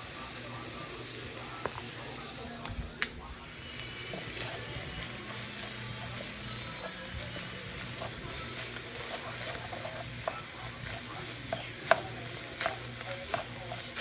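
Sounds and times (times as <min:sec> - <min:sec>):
meat sizzling in a frying pan: 0:00.0 - 0:02.0, 0:03.4 - 0:14.0
wooden spoon stirring: 0:04.0 - 0:14.0.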